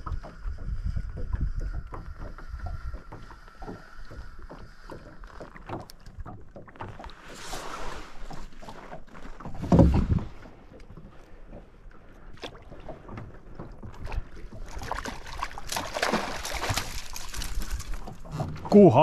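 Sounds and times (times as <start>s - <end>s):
wind rumbling on microphone: 0.0s - 5.0s, 16.7s - 18.8s
fishing gear knocking on hull: 9.4s - 10.4s
heavy thump against boat: 9.5s - 10.3s.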